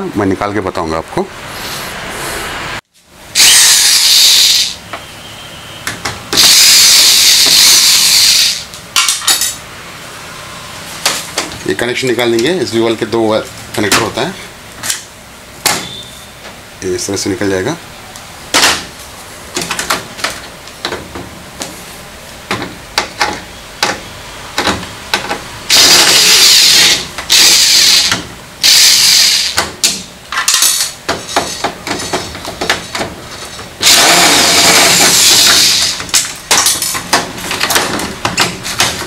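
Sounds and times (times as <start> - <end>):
electric screwdriver running: 3.4 - 4.7, 6.4 - 8.6, 25.7 - 29.6, 33.8 - 36.0.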